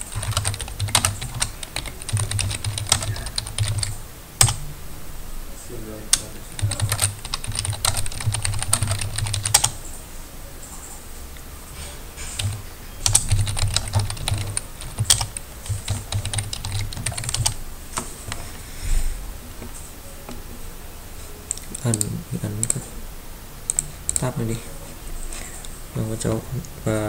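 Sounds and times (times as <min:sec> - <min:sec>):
computer keyboard typing: 0:00.0 - 0:04.6, 0:06.1 - 0:09.8, 0:12.3 - 0:18.4, 0:21.5 - 0:22.9, 0:23.7 - 0:24.4.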